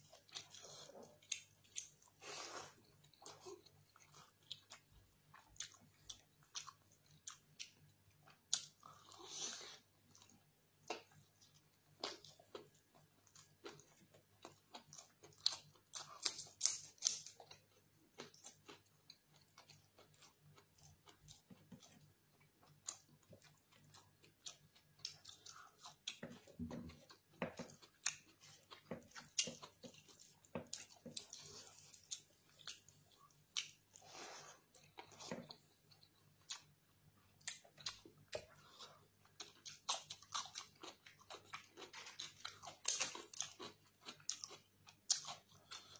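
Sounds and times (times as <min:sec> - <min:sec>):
wet chewing and lip smacks: 0:10.1 - 0:45.9.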